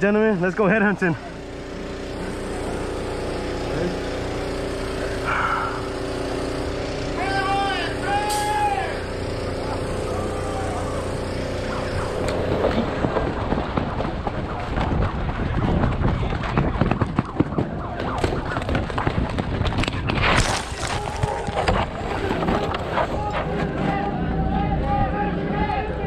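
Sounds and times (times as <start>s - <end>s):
footsteps crunching on dirt: 17.4s - 23.7s.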